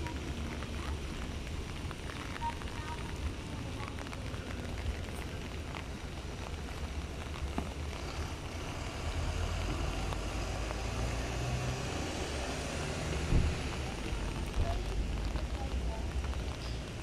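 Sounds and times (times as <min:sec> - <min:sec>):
rain: 0:00.0 - 0:17.0
road traffic: 0:00.0 - 0:17.0
vehicle passing: 0:07.9 - 0:15.4.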